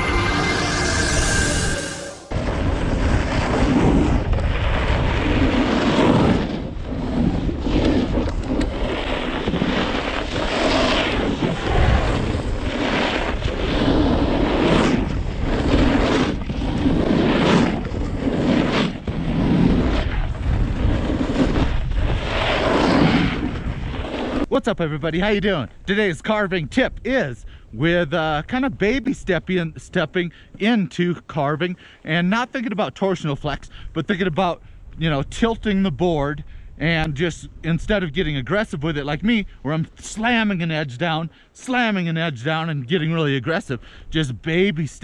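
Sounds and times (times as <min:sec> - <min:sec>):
snowboard scraping snow: 0:00.0 - 0:24.5
wind buffeting microphone: 0:02.3 - 0:25.9.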